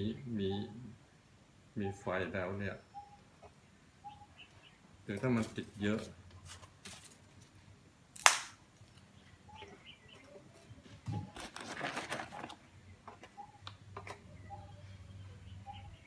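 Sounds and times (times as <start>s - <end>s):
rustling and scraping: 5.1s - 7.7s, 10.2s - 13.4s
sharp loud snap: 8.2s - 8.6s.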